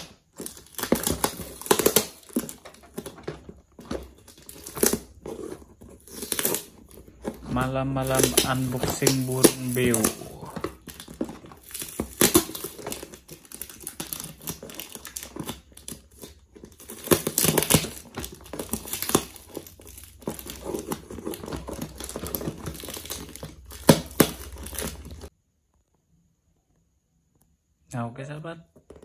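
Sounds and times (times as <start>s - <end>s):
packing tape and cardboard tearing: 0.0s - 25.3s.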